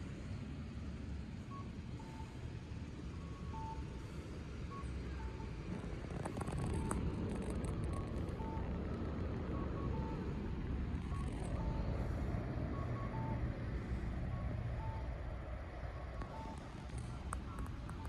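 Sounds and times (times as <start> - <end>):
vehicle engine rumbling: 0.0 - 18.0
two-tone electronic beeps: 11.0 - 12.1, 12.7 - 13.6, 16.2 - 16.6.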